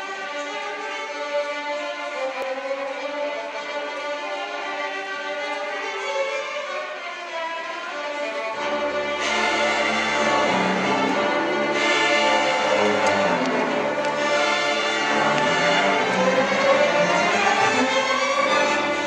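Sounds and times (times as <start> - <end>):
violins playing melody: 0.0 - 19.0
deep low string notes: 8.6 - 19.0.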